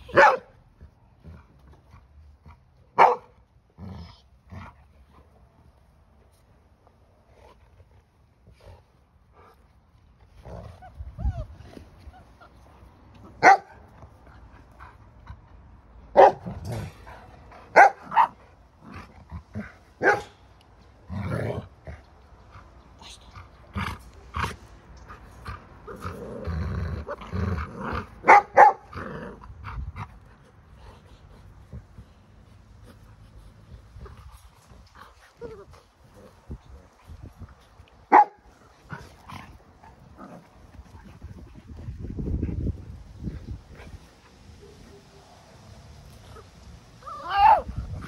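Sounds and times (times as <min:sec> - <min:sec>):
dogs barking: 0:00.1 - 0:00.5, 0:03.0 - 0:03.3, 0:13.4 - 0:13.8, 0:16.1 - 0:16.5, 0:17.7 - 0:18.4, 0:20.0 - 0:20.4, 0:28.2 - 0:28.9, 0:38.1 - 0:38.5.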